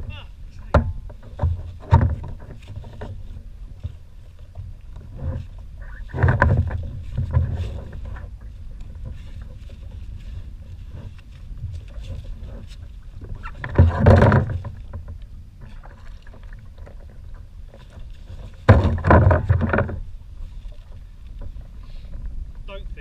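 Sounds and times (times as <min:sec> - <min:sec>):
water around kayak: 0:00.0 - 0:23.0
wind buffeting microphone: 0:00.0 - 0:23.0
wind rumble on microphone: 0:00.0 - 0:23.0.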